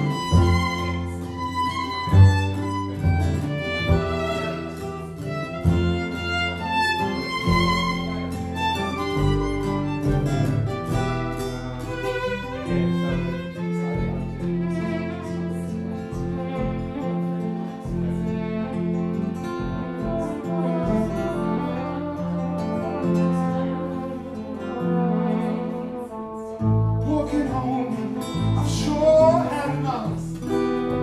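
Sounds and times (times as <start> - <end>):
acoustic guitar: 0.0 - 31.0
plucked double bass: 0.0 - 31.0
violin melody: 0.0 - 31.0
flugelhorn: 19.6 - 29.8.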